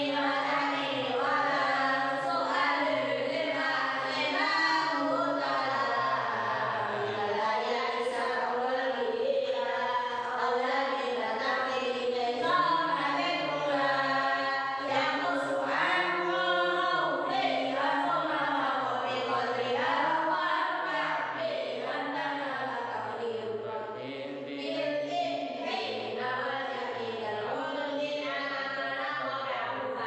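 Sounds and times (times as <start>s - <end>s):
unaccompanied choir-like vocal chant: 0.0s - 30.0s.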